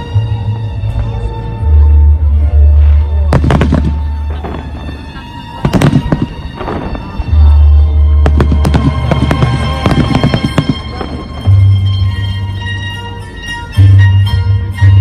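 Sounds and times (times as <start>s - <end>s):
music with deep bass: 0.0s - 15.0s
fireworks bursting: 2.8s - 12.5s.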